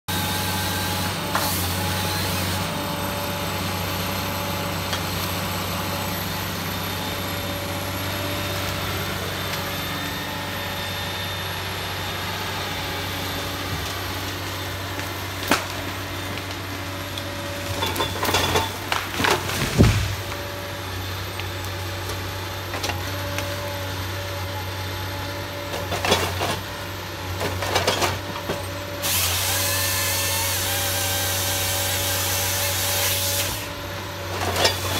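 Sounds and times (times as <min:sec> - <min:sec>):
harvester engine humming: 0:00.2 - 0:29.0
wood cracking and crashing: 0:14.3 - 0:20.6.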